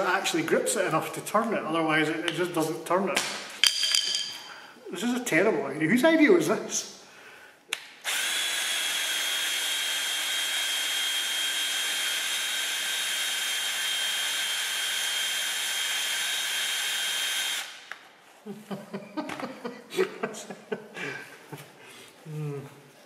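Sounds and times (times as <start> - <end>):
cordless drill whining: 8.0 - 17.8.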